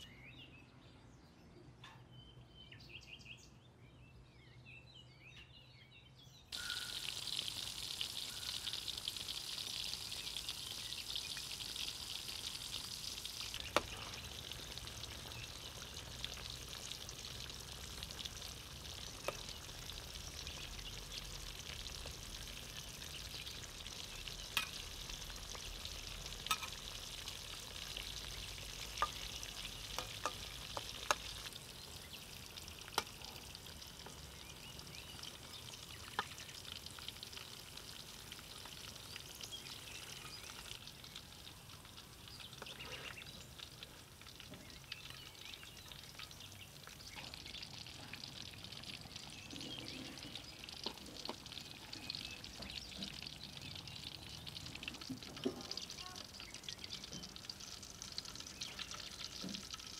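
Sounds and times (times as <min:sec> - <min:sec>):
food sizzling in hot oil: 0:06.5 - 0:59.9.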